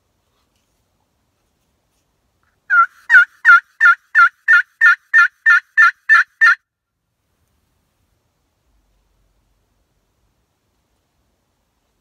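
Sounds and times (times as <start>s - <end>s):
turkey call hen yelps: 2.7s - 6.6s.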